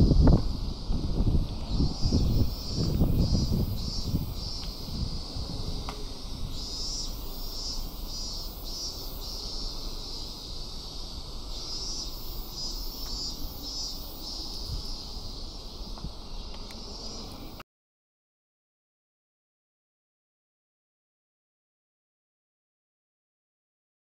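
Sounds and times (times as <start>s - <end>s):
wind rumble on microphone: 0.0s - 8.3s, 10.4s - 17.6s
cicadas chirring: 0.0s - 17.6s.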